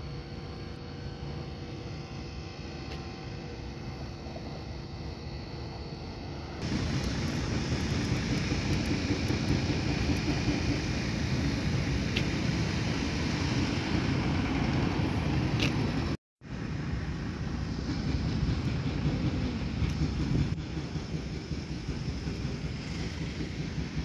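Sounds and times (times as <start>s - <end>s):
low rumble of road traffic: 0.0s - 24.0s.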